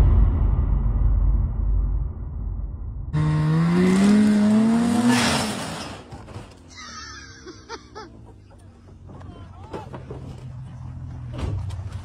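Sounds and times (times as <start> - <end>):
snowmobile engine revving: 3.2 - 6.1.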